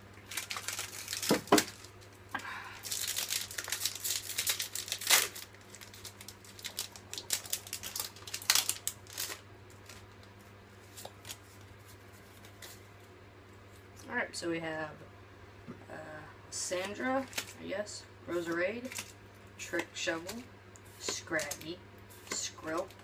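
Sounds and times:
foil wrapper tearing and crinkling: 0.2 - 2.2, 2.8 - 10.3, 17.2 - 17.6, 18.8 - 19.2.

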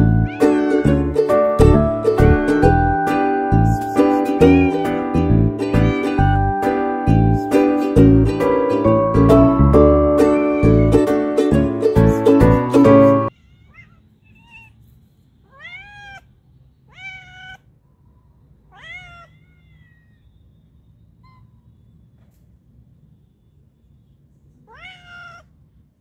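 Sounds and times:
cat meowing: 0.0 - 2.9, 4.0 - 6.6, 9.9 - 11.1, 13.3 - 17.8, 18.6 - 20.5, 21.2 - 21.9, 24.6 - 25.7.

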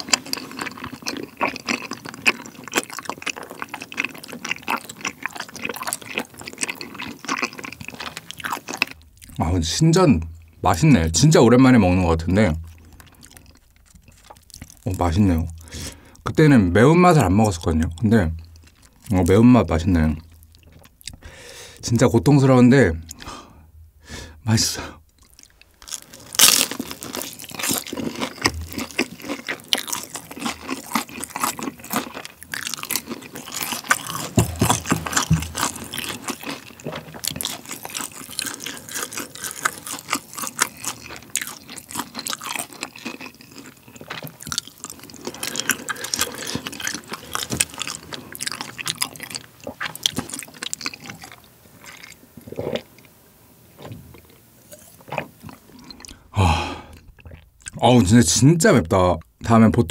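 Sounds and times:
wet sticky chewing: 0.0 - 9.5, 12.6 - 16.3, 17.2 - 21.3, 25.1 - 53.2, 53.8 - 57.8
person drinking from a glass: 52.4 - 52.9, 54.2 - 57.4.

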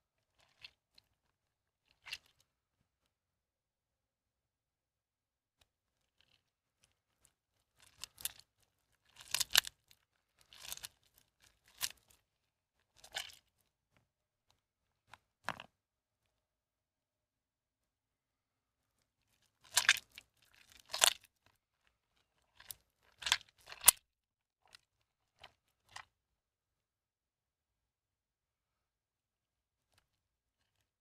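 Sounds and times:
hands squeezing wet soap: 0.0 - 3.2, 5.6 - 16.3, 18.8 - 26.3, 29.8 - 31.0.

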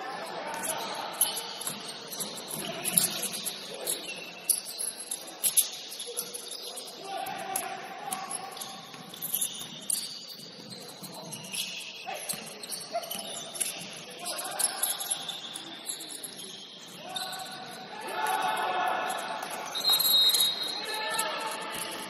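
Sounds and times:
sneakers squeaking: 0.0 - 22.0
players calling out: 16.9 - 22.0.

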